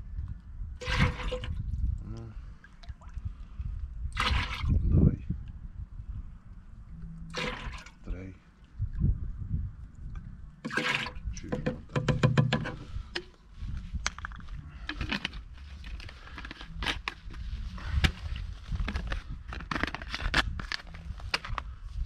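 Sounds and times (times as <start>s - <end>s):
plastic bottles clicking and knocking: 10.6s - 13.3s.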